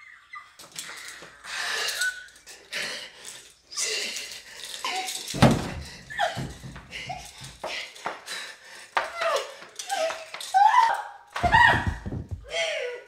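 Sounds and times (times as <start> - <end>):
woman shrieking and gasping: 9.0 - 13.0
heavy thumps: 11.4 - 12.6.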